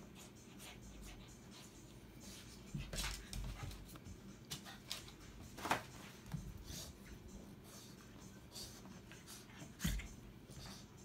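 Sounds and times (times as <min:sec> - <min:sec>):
puppy scuffling on a rug: 0:00.5 - 0:10.8.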